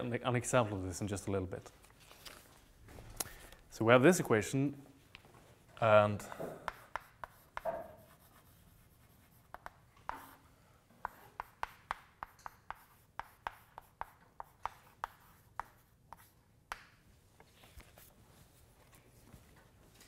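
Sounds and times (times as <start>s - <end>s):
chalk tapping on a chalkboard: 6.4s - 10.4s, 11.0s - 17.0s.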